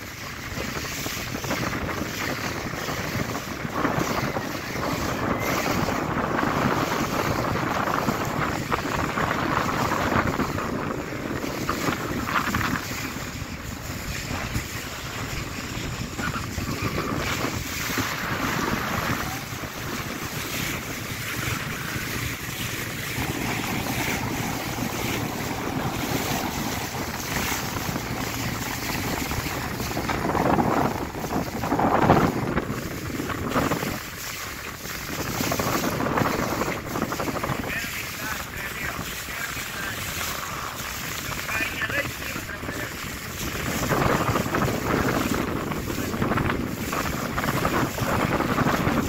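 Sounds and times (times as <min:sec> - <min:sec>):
water splashing along boat hull: 0:00.0 - 0:49.0
wind buffeting microphone: 0:00.0 - 0:49.0.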